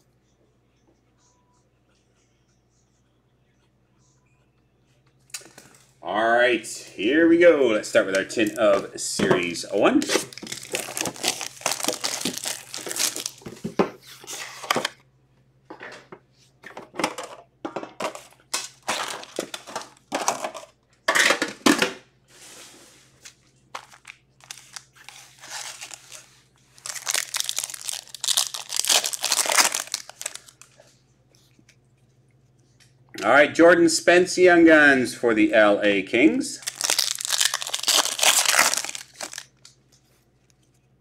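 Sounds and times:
plastic and foil packs crinkling: 7.9s - 15.0s, 18.1s - 20.6s, 23.2s - 31.5s, 36.6s - 40.7s.

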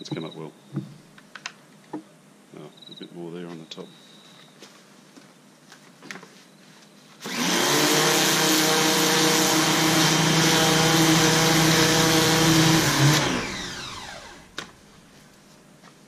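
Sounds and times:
pressure washer motor humming: 7.2s - 14.5s.

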